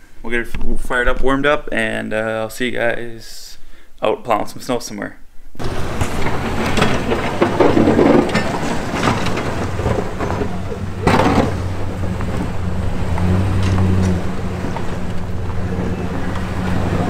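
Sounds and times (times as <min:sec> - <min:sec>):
truck engine humming: 0:05.6 - 0:17.0.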